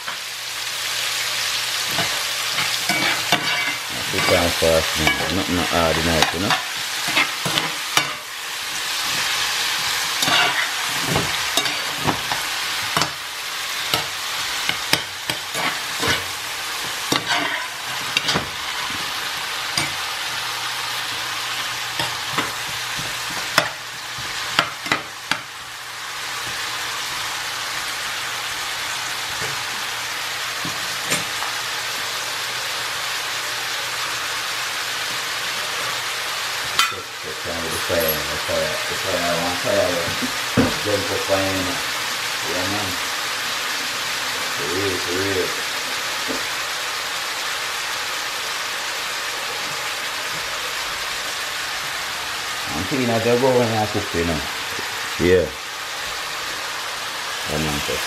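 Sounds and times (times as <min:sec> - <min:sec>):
vegetables sizzling in frying pan: 0:00.0 - 0:58.0
metal spoon scraping a pan: 0:01.9 - 0:08.4, 0:09.0 - 0:13.2, 0:13.8 - 0:16.3, 0:16.9 - 0:19.1.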